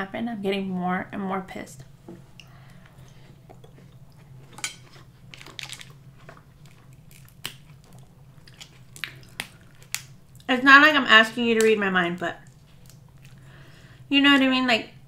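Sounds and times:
faint low hum: 0:00.0 - 0:15.0
person chewing: 0:02.4 - 0:10.5, 0:12.5 - 0:13.5
crab shell cracking: 0:04.6 - 0:10.5, 0:12.4 - 0:13.4.

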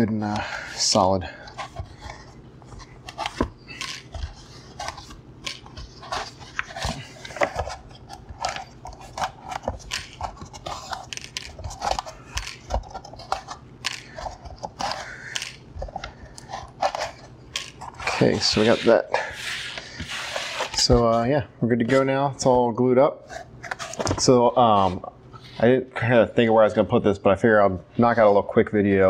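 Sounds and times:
foam rubbing: 0:17.9 - 0:20.9.

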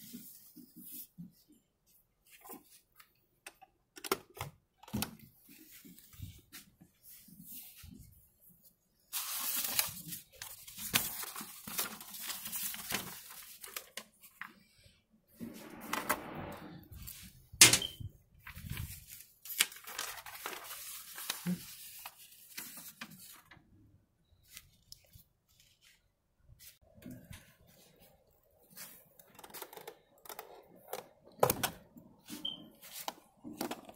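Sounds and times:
paper rustling and crinkling: 0:09.0 - 0:14.7, 0:18.4 - 0:23.6, 0:24.4 - 0:26.8.

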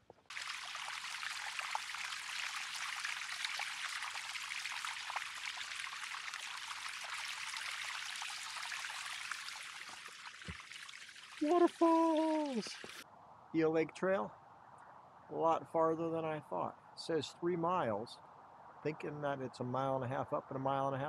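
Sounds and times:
water trickling down rock: 0:00.1 - 0:13.0.

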